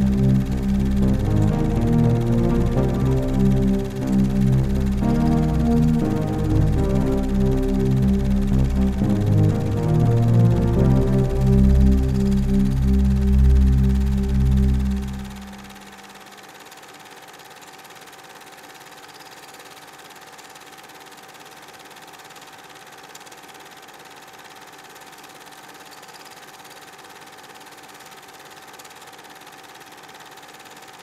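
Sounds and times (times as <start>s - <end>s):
music: 0.0s - 16.2s
faint hum-like tone: 0.0s - 16.4s.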